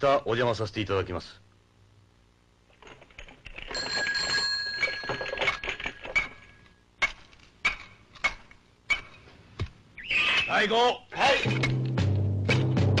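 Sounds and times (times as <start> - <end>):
bicycle bell ringing: 3.7 - 5.7.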